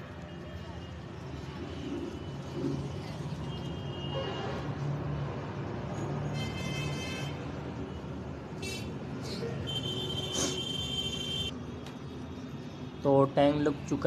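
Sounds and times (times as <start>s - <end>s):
rumble of road traffic: 0.0s - 14.0s
vehicle horn: 9.7s - 11.5s.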